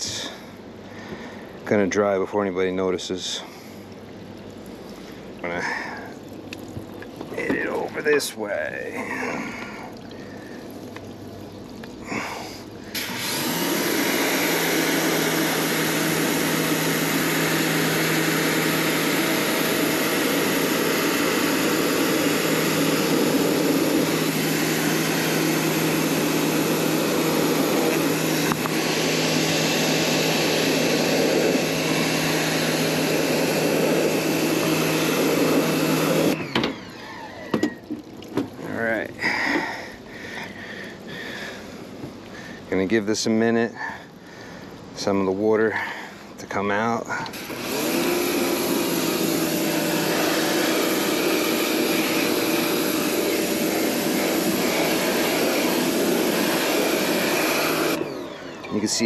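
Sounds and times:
pump hum: 0.0 - 59.0
pressure washer spray hissing: 12.1 - 36.6, 47.3 - 58.0.

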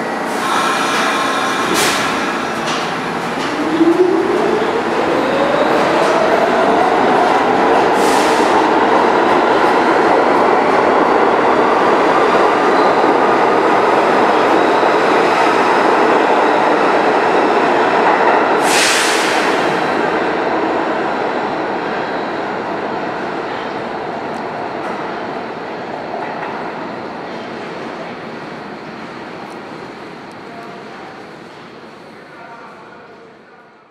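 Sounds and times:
subway train rumbling: 0.0 - 33.9
train brake hiss: 18.6 - 19.8.

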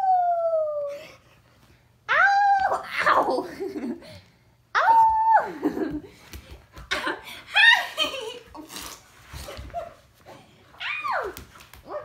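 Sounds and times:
woman laughing: 5.4 - 6.2, 6.9 - 8.7.

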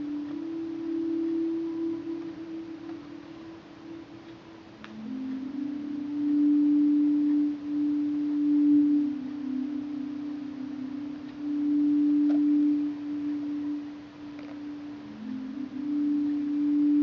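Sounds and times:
ambient drone music: 0.0 - 17.0.

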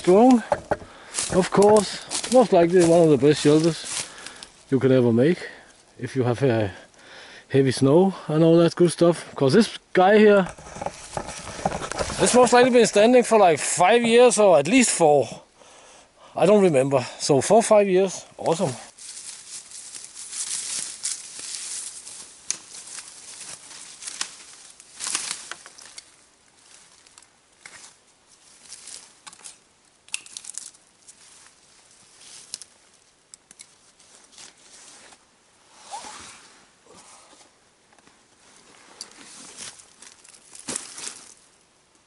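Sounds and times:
footsteps through undergrowth: 0.0 - 4.8, 10.2 - 13.4, 18.4 - 35.3, 38.2 - 41.6
twigs crackling: 0.0 - 6.0, 9.6 - 14.9, 18.4 - 35.2, 39.0 - 42.0.

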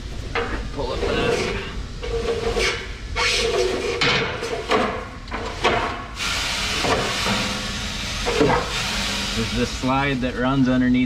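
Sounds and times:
steel slide scraping and knocking: 0.9 - 6.0
grain pouring with a hiss: 6.2 - 10.5.

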